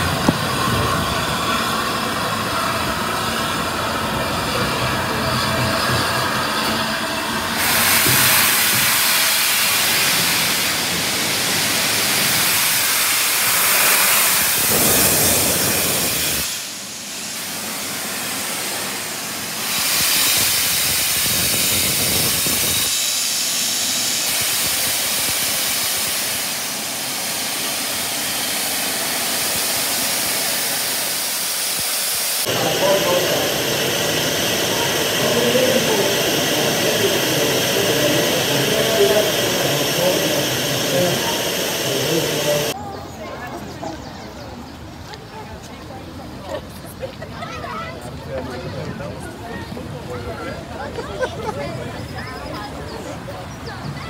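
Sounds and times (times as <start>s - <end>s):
steam locomotive hissing: 0.0s - 42.8s.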